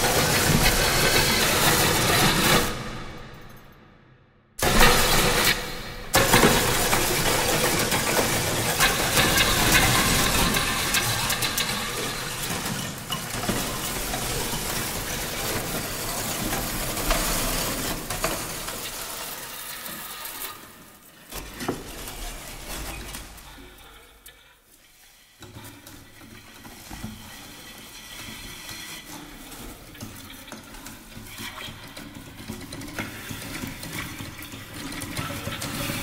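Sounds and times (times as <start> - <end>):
burning sparks fizzing and crackling: 4.6 - 20.6.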